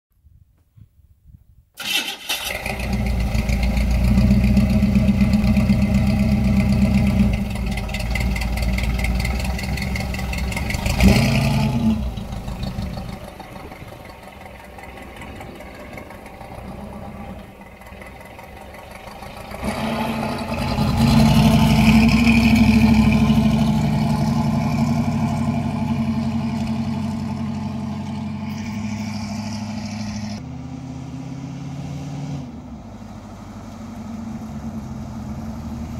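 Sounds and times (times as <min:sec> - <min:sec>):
pickup truck engine running: 0:02.5 - 0:30.4.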